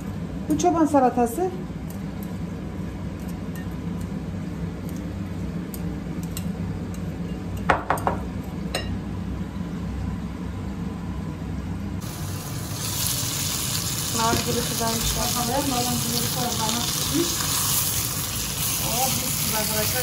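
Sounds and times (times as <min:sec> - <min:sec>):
fish sizzling in a pan: 0:12.0 - 0:20.0.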